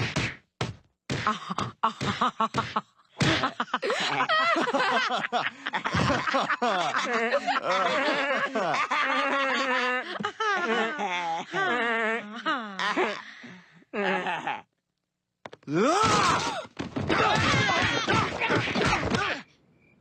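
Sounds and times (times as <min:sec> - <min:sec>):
people laughing: 0:01.3 - 0:13.2, 0:17.2 - 0:19.3.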